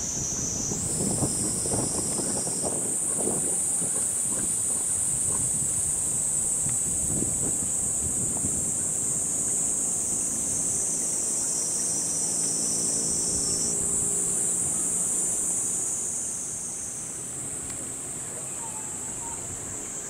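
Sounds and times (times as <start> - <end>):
high-pitched insect chorus: 0.0 - 20.0.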